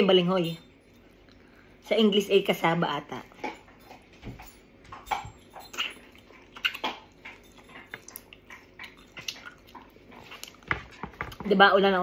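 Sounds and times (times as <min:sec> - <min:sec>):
mouth smacking and chewing: 0:04.9 - 0:11.4.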